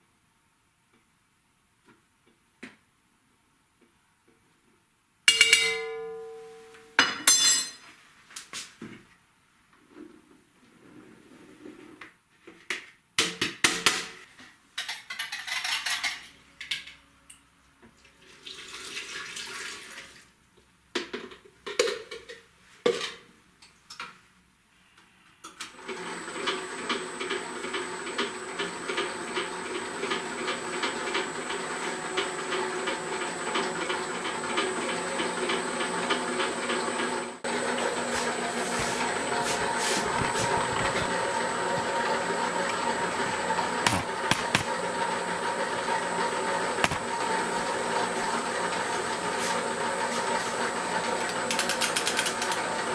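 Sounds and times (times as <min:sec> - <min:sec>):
dough mixer motor humming: 0:25.8 - 0:52.9.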